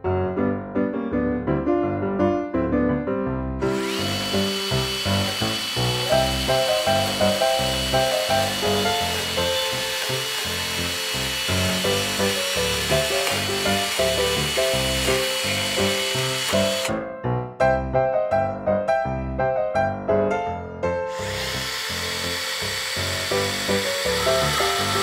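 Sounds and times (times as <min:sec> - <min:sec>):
miniature chainsaw whine: 0:03.7 - 0:16.9, 0:21.1 - 0:25.0.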